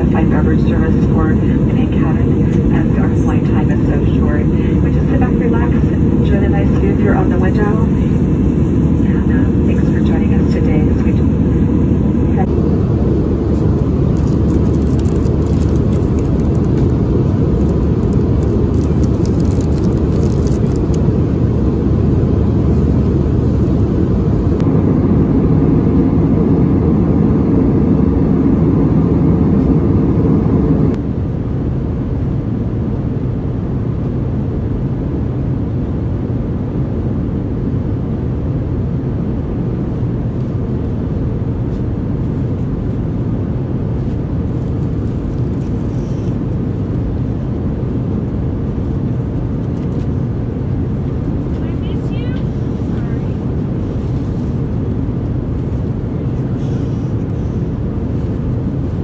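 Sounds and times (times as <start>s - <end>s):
airplane cabin noise: 0.0s - 59.0s
light crackles: 13.5s - 21.1s.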